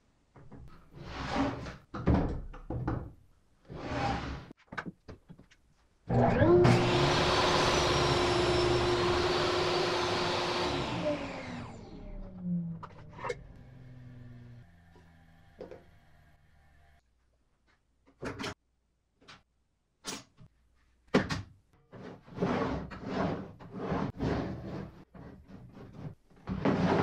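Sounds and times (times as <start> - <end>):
table saw motor running: 6.4 - 17.0.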